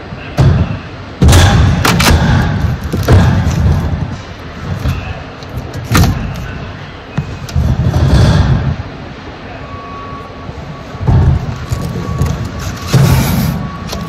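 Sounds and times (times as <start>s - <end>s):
cardboard boxes thumping: 1.2s - 4.1s.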